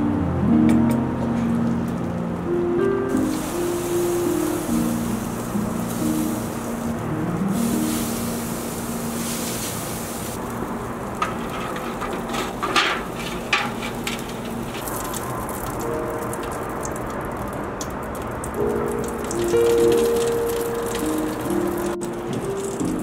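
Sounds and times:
steady hiss: 3.1s - 16.6s, 18.6s - 23.0s
foil pans clattering on grates: 11.0s - 15.2s.

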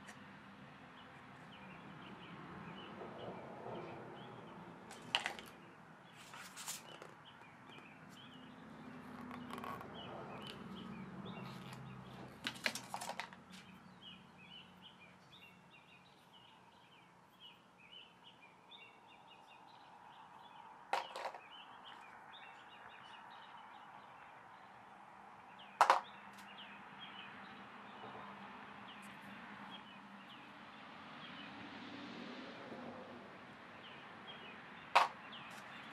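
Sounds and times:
objects set down on tabletop: 4.9s - 5.5s, 20.9s - 21.4s, 25.8s - 26.1s, 35.0s - 35.2s
faint bird chirping: 13.5s - 30.6s.

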